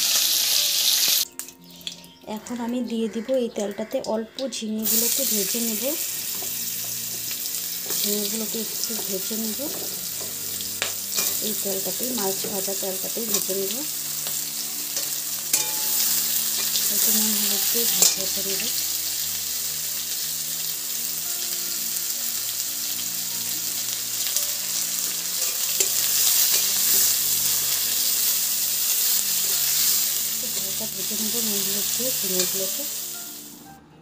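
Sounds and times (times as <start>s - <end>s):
vegetables sizzling in hot oil: 0.0s - 2.0s, 4.8s - 33.6s
metal spatula clicking on pan: 17.9s - 18.7s.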